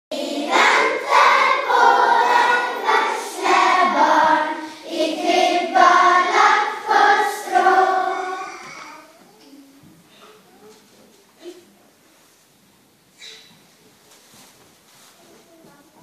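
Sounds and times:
children's choir singing: 0:00.1 - 0:08.9.

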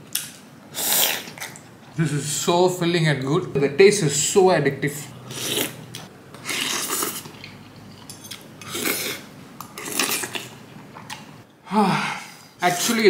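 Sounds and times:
person slurping noodles: 0:00.7 - 0:01.5, 0:05.2 - 0:05.8, 0:06.4 - 0:07.4, 0:08.6 - 0:10.5.

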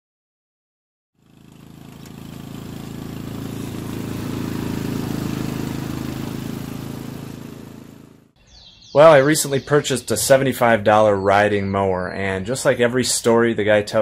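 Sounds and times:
lawn mower engine running: 0:01.2 - 0:08.4.

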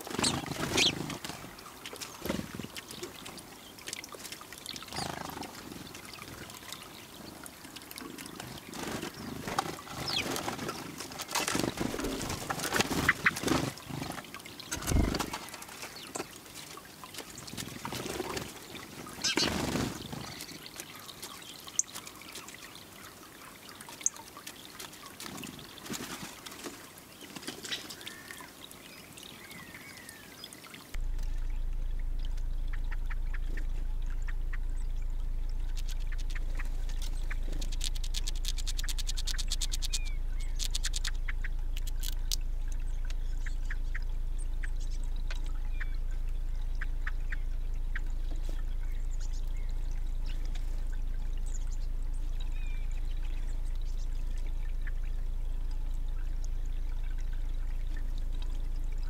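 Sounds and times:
fountain bubbling: 0:00.0 - 0:26.0, 0:26.8 - 0:59.0
low hum: 0:31.0 - 0:59.0
squirrel gnawing nut clicks: 0:37.5 - 0:42.4.

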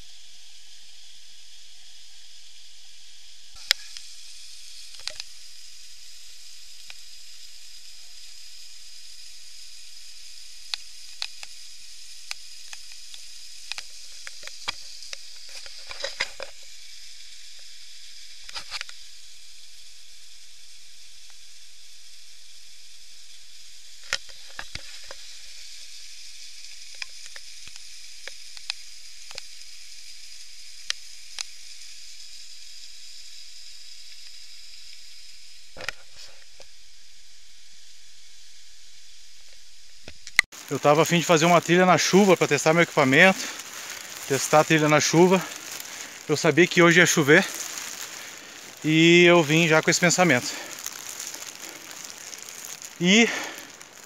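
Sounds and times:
steady recording hiss: 0:00.0 - 0:54.0.

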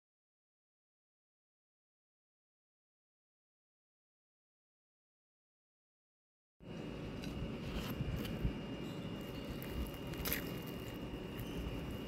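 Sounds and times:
fried pastry crackling: 0:09.1 - 0:12.0.

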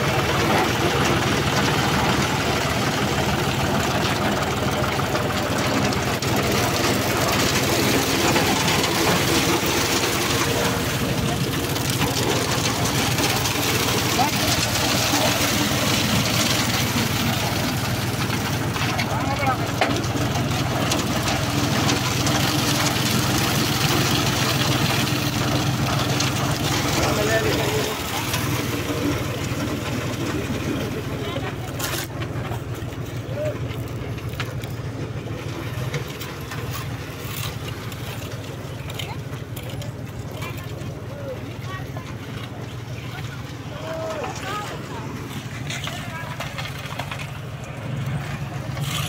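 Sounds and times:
concrete discharging down chute: 0:00.0 - 0:49.0
tractor engine running: 0:00.0 - 0:49.0.

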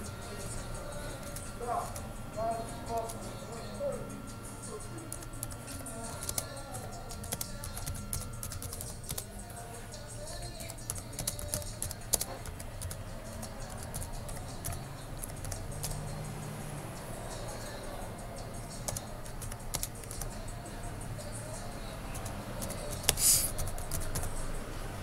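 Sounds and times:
typing on computer keyboard: 0:05.1 - 0:09.3, 0:10.4 - 0:16.0, 0:18.8 - 0:20.4, 0:22.1 - 0:24.4.

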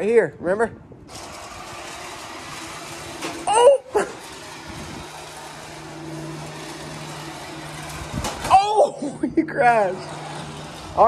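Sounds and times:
toy car electric motor whirring: 0:01.1 - 0:11.0
high-pitched vocal cry: 0:03.4 - 0:04.2.

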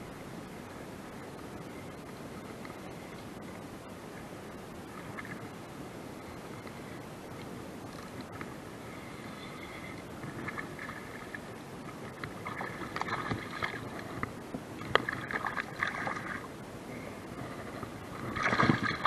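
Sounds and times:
water sloshing: 0:10.2 - 0:16.6, 0:17.3 - 0:19.0
fish splashing: 0:12.2 - 0:14.2, 0:14.8 - 0:16.5, 0:18.2 - 0:19.0.

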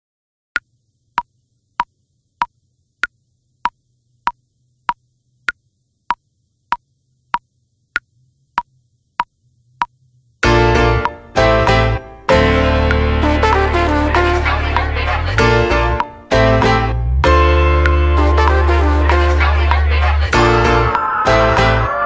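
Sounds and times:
music with brass: 0:10.5 - 0:22.0.

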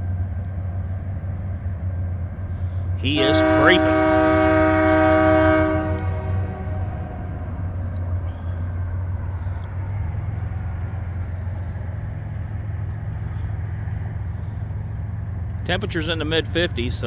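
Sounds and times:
diesel engine low rumble: 0:00.0 - 0:17.0
locomotive horn: 0:03.0 - 0:07.4.

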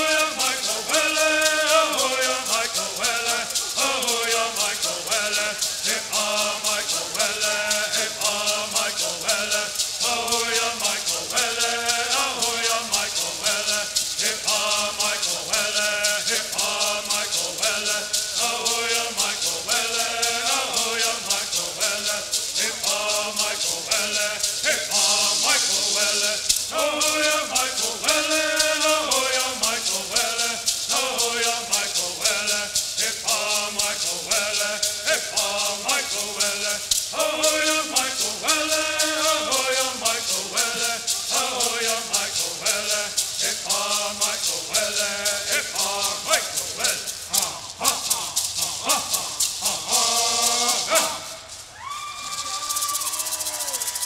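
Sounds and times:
men singing in unison: 0:00.0 - 0:51.6
gourd rattles shaking: 0:00.0 - 0:54.0.

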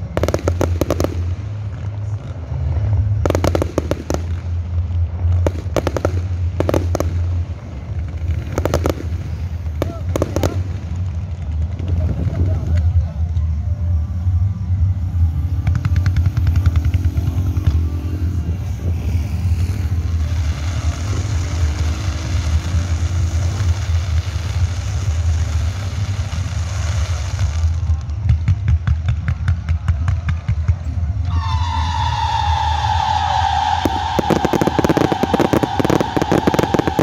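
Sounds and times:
fireworks booming: 0:00.0 - 0:02.0, 0:02.7 - 0:13.0, 0:32.2 - 0:37.0
fireworks crackling: 0:00.0 - 0:37.0.

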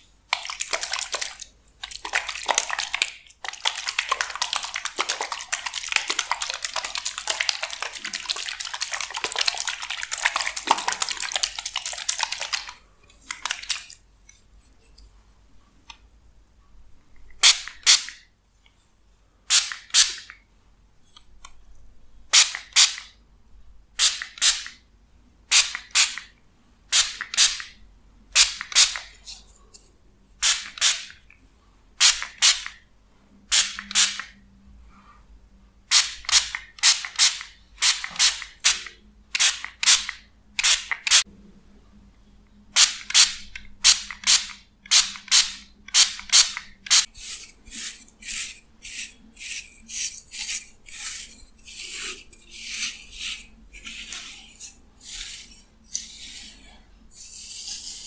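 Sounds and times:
plastic bottle crackling: 0:00.3 - 0:14.0
spray bottle hissing: 0:19.5 - 0:20.3, 0:30.4 - 0:31.1, 0:33.5 - 0:34.3, 0:35.9 - 0:41.2, 0:42.8 - 0:56.5.

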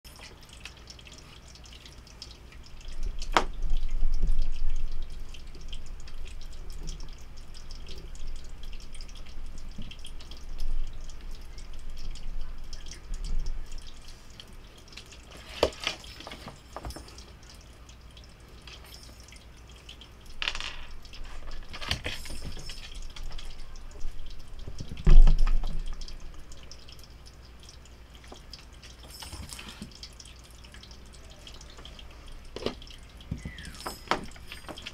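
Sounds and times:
toy ball knocking and rolling on wood: 0:20.4 - 0:21.0.

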